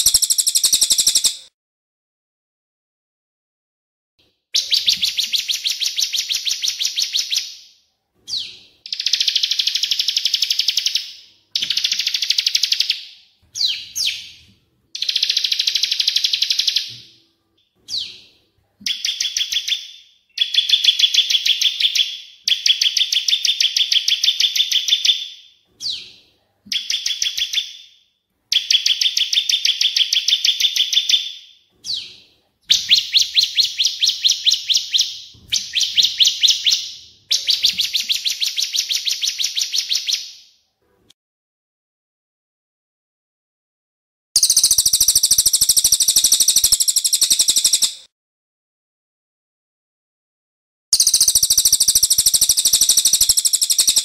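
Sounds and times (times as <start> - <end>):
songbird trills: 0.0 - 1.5, 44.4 - 48.1, 51.0 - 54.0.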